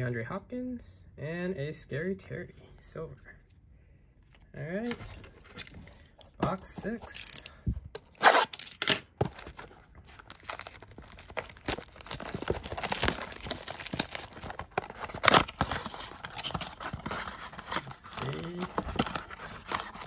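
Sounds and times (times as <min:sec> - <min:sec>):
packs crinkling: 0:08.4 - 0:20.0
cardboard box tearing: 0:09.2 - 0:20.0.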